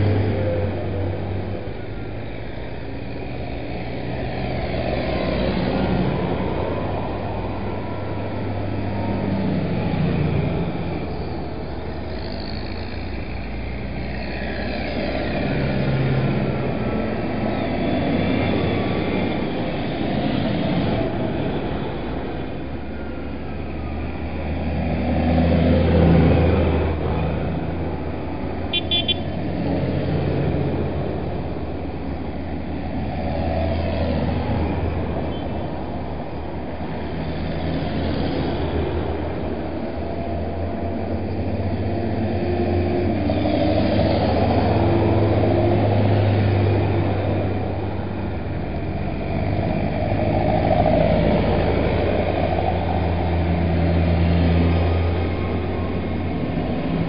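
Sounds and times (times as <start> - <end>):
tractor engines driving past: 0.0 - 57.0
short horn toot: 28.7 - 29.3.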